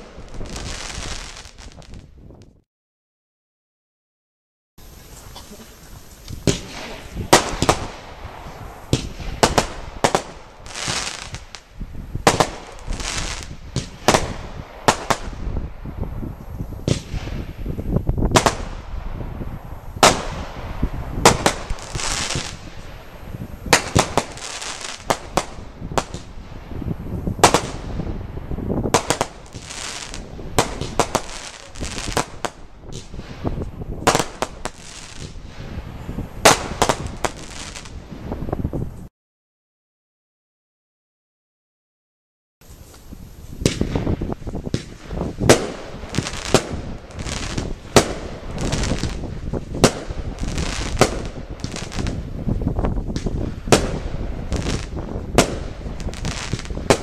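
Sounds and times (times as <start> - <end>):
firework hissing: 4.8 - 38.4, 42.6 - 57.0
firework launch thumps and bangs: 8.9 - 11.4, 13.4 - 15.4, 16.8 - 17.5, 20.0 - 20.6, 43.6 - 57.0.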